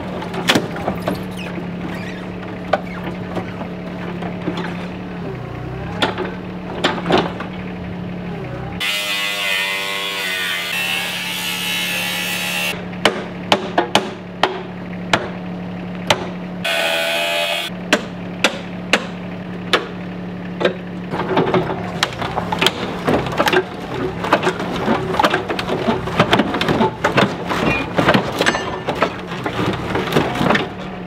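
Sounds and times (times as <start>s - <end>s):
machine hum: 14.7s - 31.0s
rough rumble: 19.3s - 31.0s
metallic knocks: 20.6s - 30.8s.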